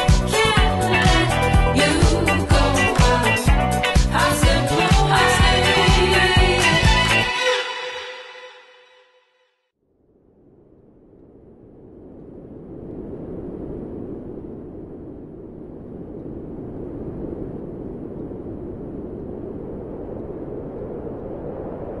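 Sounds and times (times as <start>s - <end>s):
low rumbling noise: 9.9s - 22.0s.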